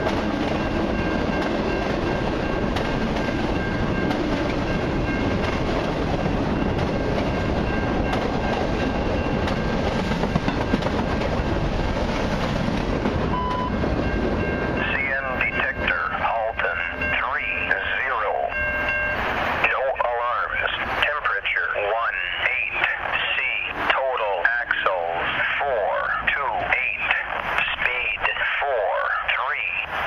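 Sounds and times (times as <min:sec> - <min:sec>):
train wheels rumbling on rail: 0:00.0 - 0:30.0.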